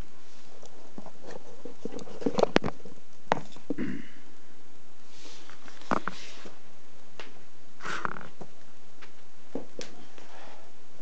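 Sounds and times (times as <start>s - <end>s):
soft rustle: 0.0s - 3.7s, 5.0s - 10.8s.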